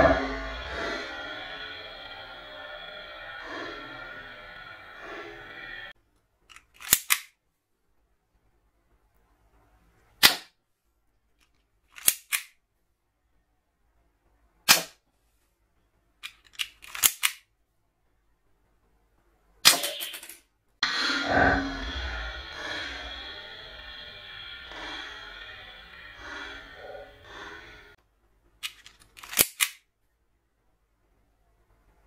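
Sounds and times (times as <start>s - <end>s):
toy gun cocking and firing clicks: 6.6s - 7.3s, 12.0s - 12.6s, 16.3s - 17.5s, 28.7s - 29.9s.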